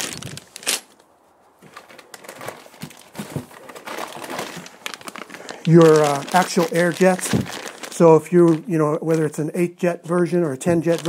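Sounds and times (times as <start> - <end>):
plastic bags crinkling: 0.0 - 1.0, 1.6 - 9.8, 10.6 - 11.0
cardboard box rustling: 1.6 - 8.6.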